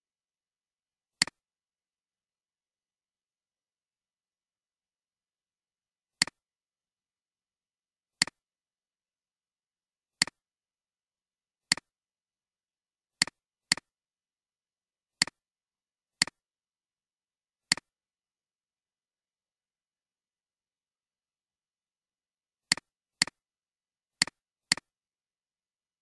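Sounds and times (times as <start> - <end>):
computer mouse clicks: 11.7 - 11.9, 13.2 - 13.9, 17.7 - 17.9, 22.7 - 23.4, 24.2 - 24.9.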